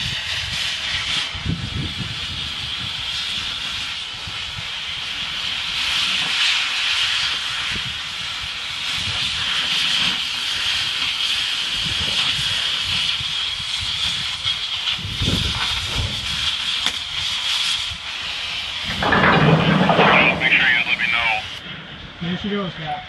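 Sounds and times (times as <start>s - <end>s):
cutting torch hissing: 0.0s - 19.1s, 19.8s - 21.6s
low rumbling: 18.8s - 22.2s.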